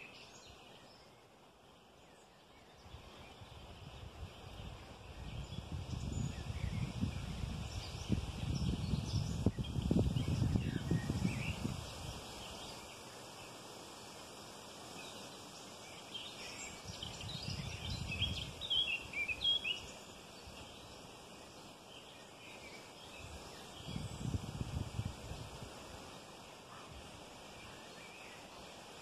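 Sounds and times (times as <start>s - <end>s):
faint outdoor hiss: 0.0s - 29.0s
small birds chirping: 0.0s - 29.0s
low rumbling on microphone: 3.5s - 12.1s, 23.8s - 25.7s.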